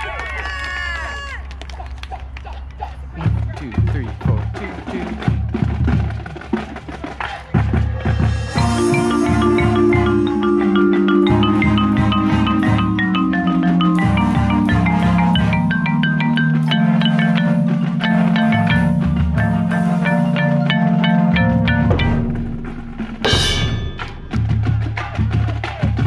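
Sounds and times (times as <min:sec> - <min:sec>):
percussion hits: 0:03.2 - 0:26.0
marimba playing: 0:07.7 - 0:25.4.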